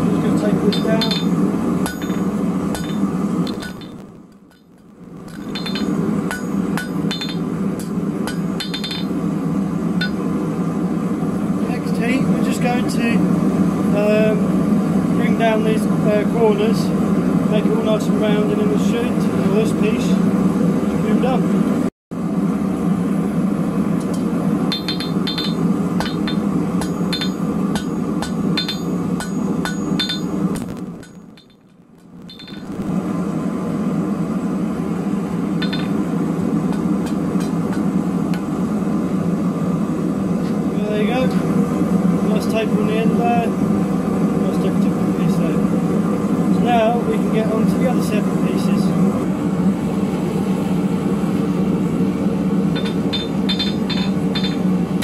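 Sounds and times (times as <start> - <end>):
gas forge roaring: 0.0 - 55.0
hammer ringing on hot steel: 0.4 - 9.2, 10.0 - 10.3, 24.0 - 32.8, 35.6 - 36.0, 52.7 - 54.7.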